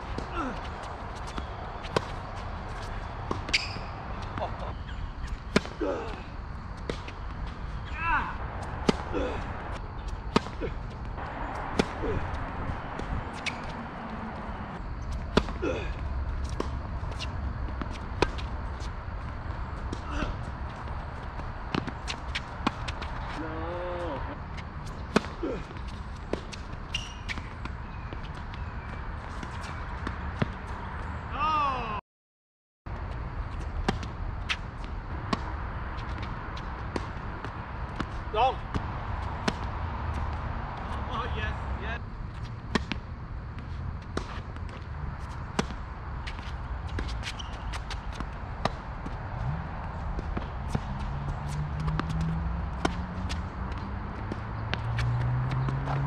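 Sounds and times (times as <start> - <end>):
tennis ball bouncing: 0.0 - 23.4, 24.6 - 30.9, 33.8 - 41.0, 42.3 - 56.0
racket hitting tennis ball: 0.0 - 23.5, 24.6 - 27.7, 33.8 - 41.0, 42.7 - 43.1, 44.1 - 49.2, 50.2 - 56.0
footstep scuffs: 43.6 - 56.0.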